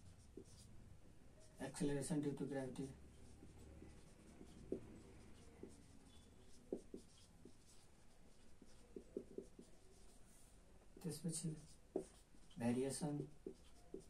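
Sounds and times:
marker writing on whiteboard: 0.0 - 14.0.

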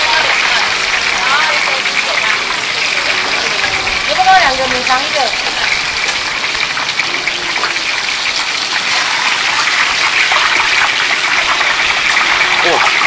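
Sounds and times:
hot oil sizzling and bubbling: 0.0 - 13.0.

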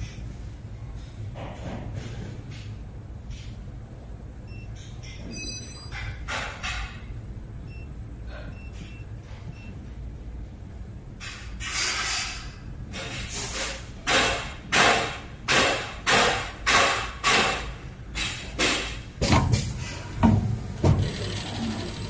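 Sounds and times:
heavy machine thuds: 18.6 - 21.4.

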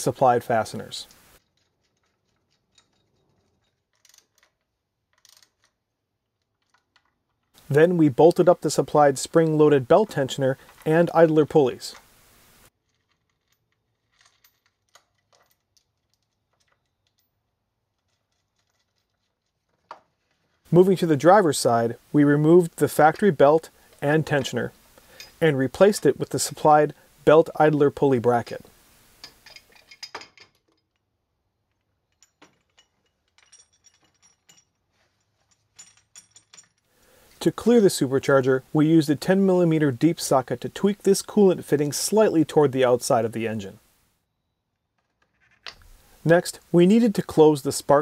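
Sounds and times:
metal parts clinking: 1.0 - 7.6, 12.8 - 19.9, 29.2 - 37.4.

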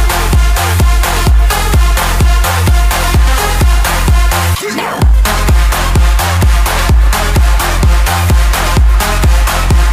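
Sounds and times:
electronic dance music: 0.0 - 9.9.

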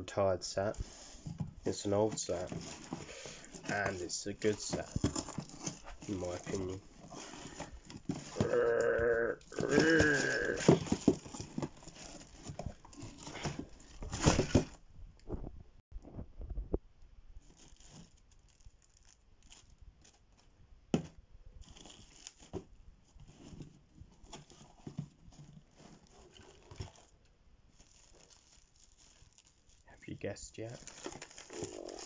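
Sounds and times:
bubble wrap crinkling: 0.6 - 14.8, 17.4 - 20.5, 21.6 - 32.0
cardboard and tape ripping: 1.8 - 14.8, 27.8 - 29.8, 30.6 - 32.0.

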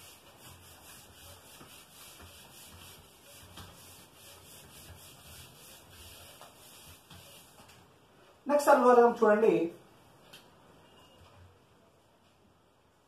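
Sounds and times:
eraser rubbing on whiteboard: 0.0 - 7.8.

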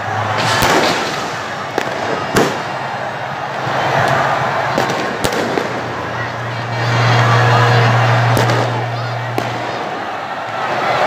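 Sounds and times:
stadium crowd din: 0.0 - 11.0
firecrackers bursting: 0.1 - 11.0.

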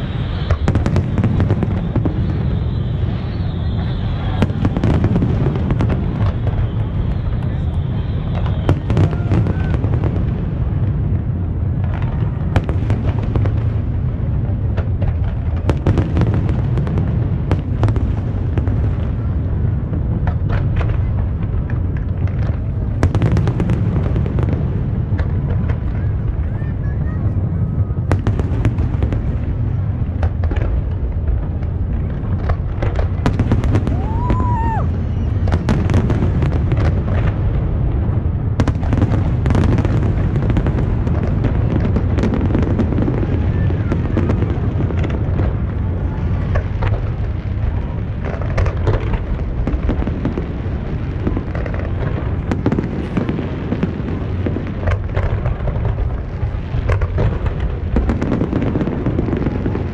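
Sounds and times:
firework whistle: 0.0 - 10.3, 33.3 - 37.3
fireworks booming and crackling: 0.0 - 59.9.

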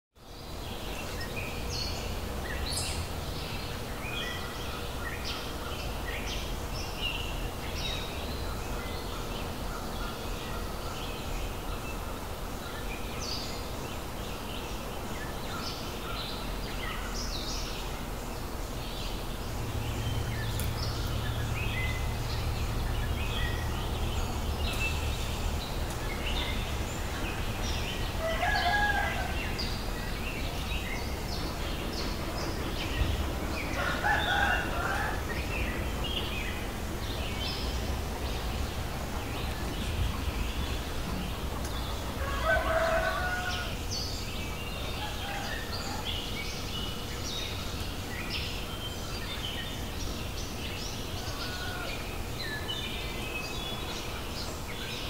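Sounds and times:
small birds chirping: 0.2 - 55.0
low steady rumble: 16.3 - 28.4
rooster crowing: 28.1 - 29.8, 33.7 - 35.4, 42.2 - 43.9, 44.9 - 46.2, 51.1 - 52.2.

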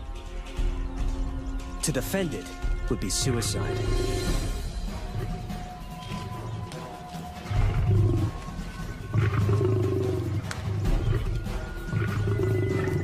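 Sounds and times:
background music: 0.0 - 13.0
lions growling: 5.0 - 13.0.

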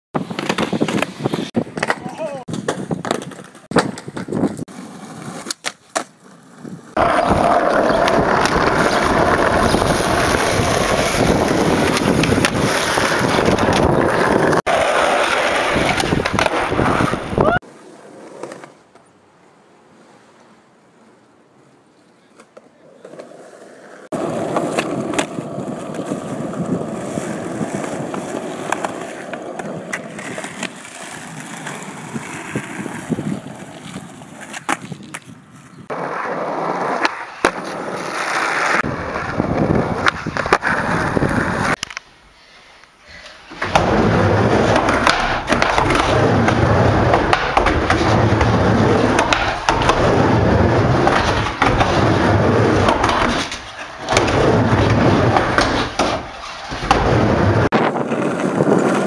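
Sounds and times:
skateboard landing clack: 0.2 - 4.6, 43.6 - 59.0
skateboard tail snapping: 0.2 - 4.6, 5.2 - 6.2, 7.0 - 14.6, 43.6 - 58.7
skateboard wheels rolling on asphalt: 0.2 - 59.0
wheel rumble on wooden ramp: 43.6 - 59.0.

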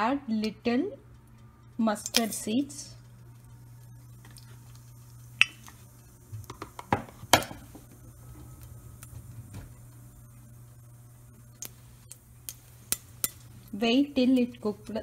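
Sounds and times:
low hum: 0.0 - 15.0
mustard seeds popping in oil: 4.1 - 8.0, 11.5 - 13.5.

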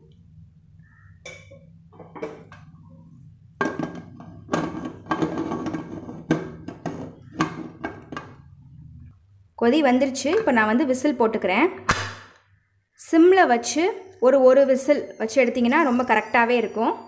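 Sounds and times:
metal lid clanking on pot: 3.6 - 8.4.

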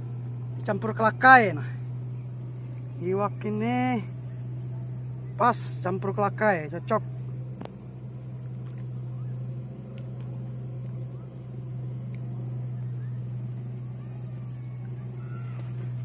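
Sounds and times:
low motor hum: 0.0 - 16.0
faint ticks: 9.9 - 11.2, 12.0 - 12.3.

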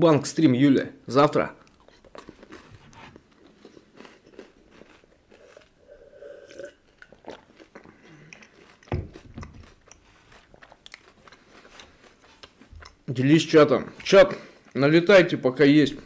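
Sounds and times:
chewing and crunching cookies: 1.6 - 15.4.

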